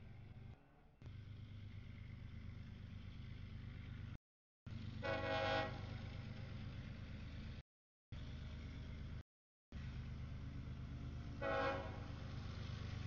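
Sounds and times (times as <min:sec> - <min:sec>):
diesel locomotive rumbling: 0:00.0 - 0:13.0
train horn blast: 0:05.0 - 0:06.0, 0:11.4 - 0:12.2.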